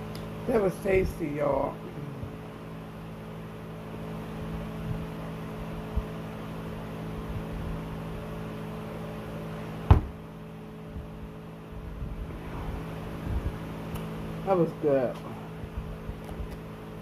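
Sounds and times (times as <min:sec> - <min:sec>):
low mechanical hum: 0:00.0 - 0:17.0
cup thump on table: 0:09.9 - 0:10.2.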